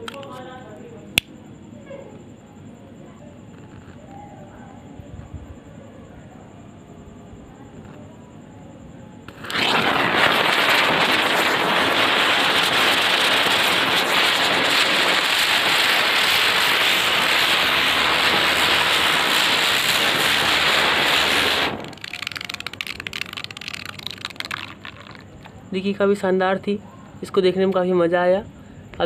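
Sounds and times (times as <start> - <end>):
ground spinner firework hissing: 9.2 - 26.0.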